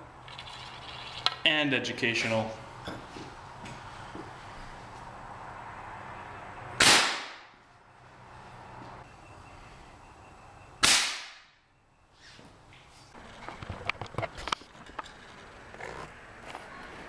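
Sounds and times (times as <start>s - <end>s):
air gun blast: 6.8s - 7.4s, 10.8s - 11.5s.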